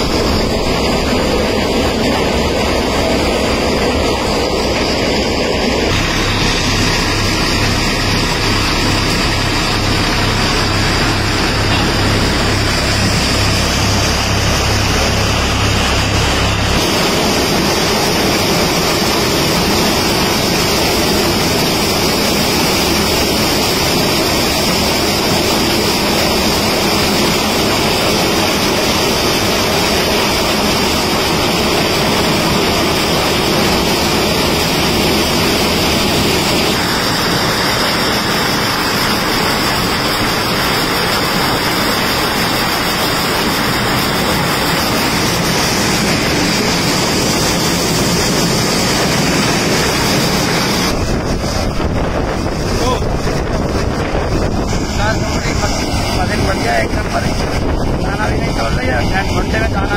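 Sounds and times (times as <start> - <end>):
tractor diesel engine thrum: 5.8 - 21.8
kernels pouring down chute: 6.0 - 50.9.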